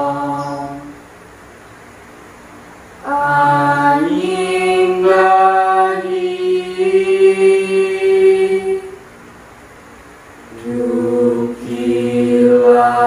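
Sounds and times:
unaccompanied group singing: 0.0s - 1.0s, 3.0s - 9.1s, 10.5s - 13.0s.

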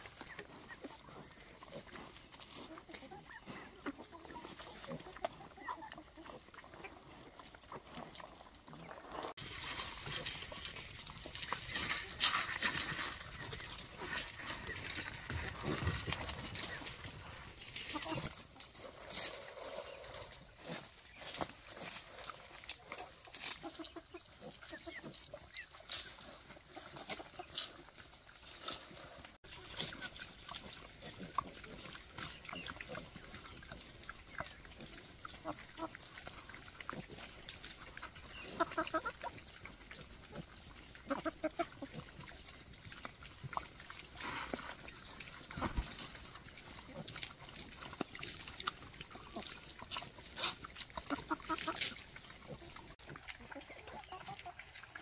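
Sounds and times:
chickens chirpy calls: 0.0s - 18.6s, 19.2s - 28.1s, 29.4s - 55.0s
boar chewing and slurping: 0.0s - 55.0s
chewing and pecking clicks: 29.5s - 53.4s.

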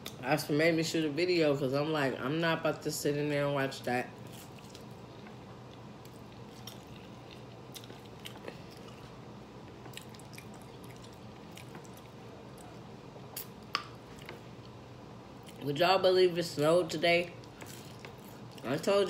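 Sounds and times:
chewing fries: 4.2s - 14.8s, 15.4s - 15.7s, 17.3s - 19.0s.

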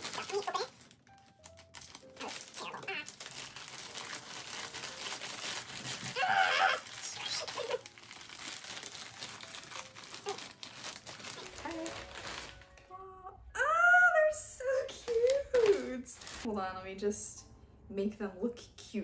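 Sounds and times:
plastic bag crinkling: 0.0s - 12.9s, 15.0s - 16.5s.

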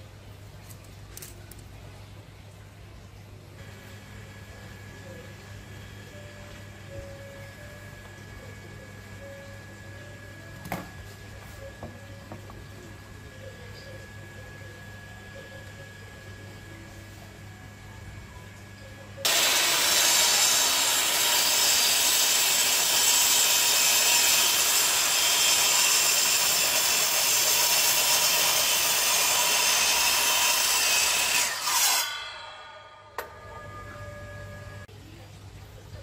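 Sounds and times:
miter saw cutting wood: 19.2s - 33.9s.

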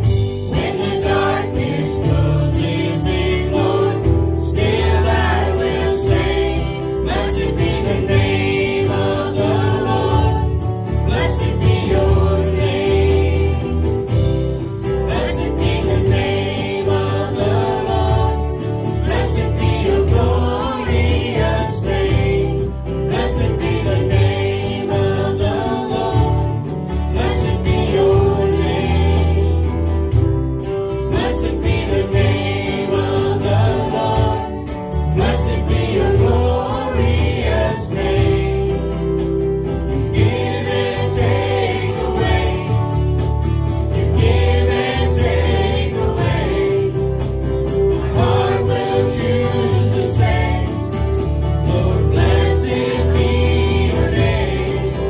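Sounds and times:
voices singing: 0.0s - 14.3s, 15.0s - 30.0s, 31.1s - 43.1s, 43.8s - 55.0s
instrumental accompaniment with beat: 0.0s - 55.0s.

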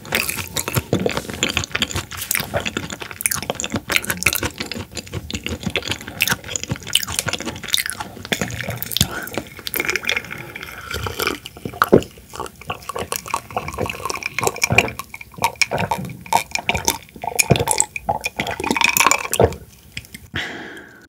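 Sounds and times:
person gulping and swallowing: 0.0s - 21.0s.

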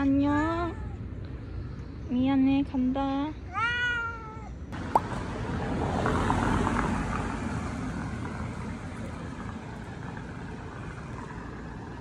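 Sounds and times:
steady traffic hum: 0.0s - 12.0s
car passing: 4.8s - 12.0s.

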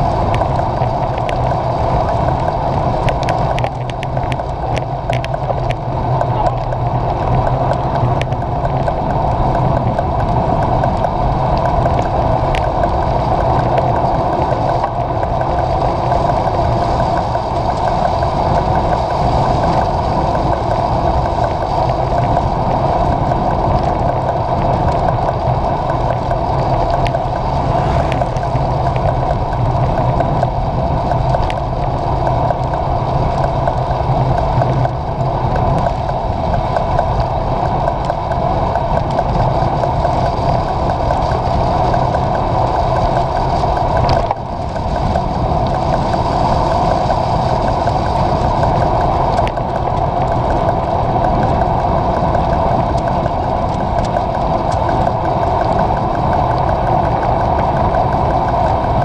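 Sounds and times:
wind rushing: 25.7s - 30.6s.

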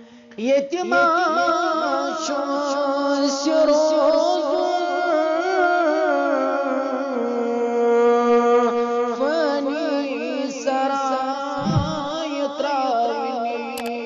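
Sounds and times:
man singing devotional song: 0.4s - 11.0s
low thump: 11.6s - 12.1s.

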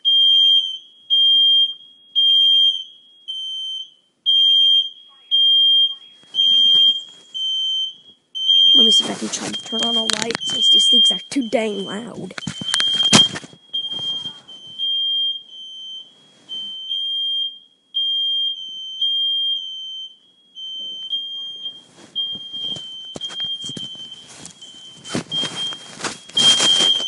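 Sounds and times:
smoke alarm beeping: 0.0s - 27.0s
rustling and knocking from movement: 21.9s - 27.0s.

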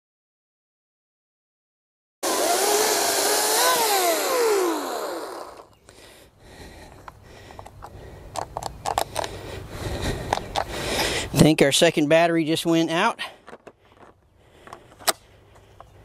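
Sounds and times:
chainsaw cutting log winding down: 2.2s - 5.7s.

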